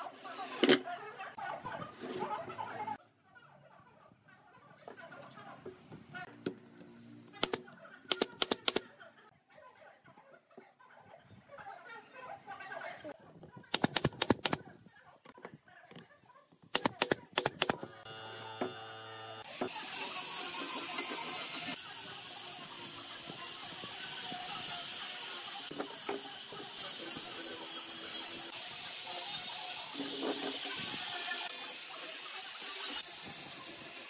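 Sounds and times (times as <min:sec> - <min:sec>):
sharp clicks: 0:07.4 - 0:08.8, 0:13.7 - 0:14.6, 0:16.7 - 0:17.8
angle grinder humming: 0:17.8 - 0:33.0
grinder sanding wood hiss: 0:19.4 - 0:34.0.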